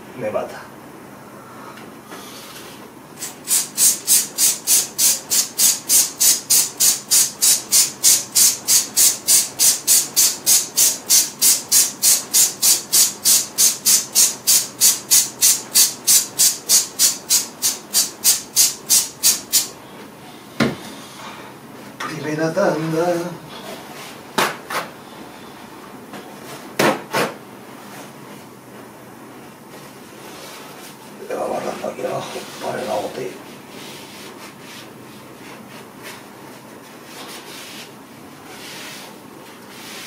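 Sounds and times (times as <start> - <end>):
rhythmic hissing cleaning strokes: 3.2 - 19.8.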